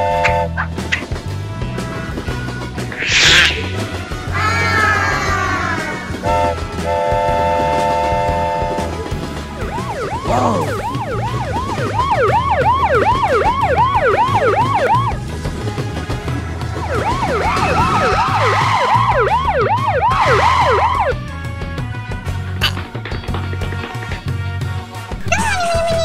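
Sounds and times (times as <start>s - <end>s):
cartoon police siren wail: 4.3s - 6.5s, 9.6s - 15.2s, 16.7s - 21.2s, 25.3s - 26.0s.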